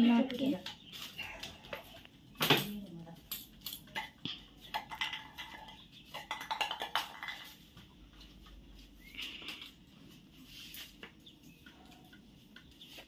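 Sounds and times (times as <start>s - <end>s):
broom sweeping tiled floor: 7.2s - 13.0s.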